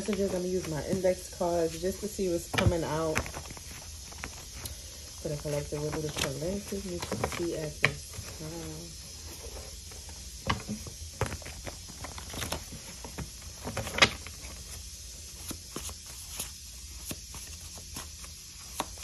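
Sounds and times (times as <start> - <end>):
cards being shuffled: 0.0 - 19.0.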